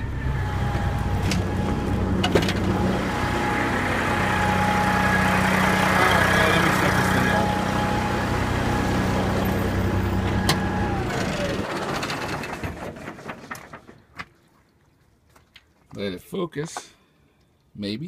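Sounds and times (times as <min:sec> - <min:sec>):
diesel truck engine idling: 0:00.0 - 0:11.7.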